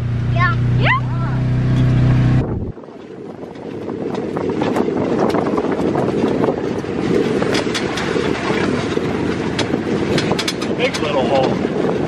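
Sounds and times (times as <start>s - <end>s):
vehicle engine and tyres rumble: 0.0s - 12.0s
sharp clicks and rattles: 2.6s - 12.0s.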